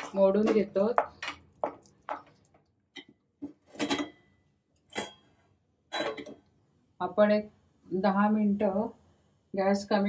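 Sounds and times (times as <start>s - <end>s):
steel cookware knocks and clinks: 3.7s - 4.3s, 4.9s - 5.3s.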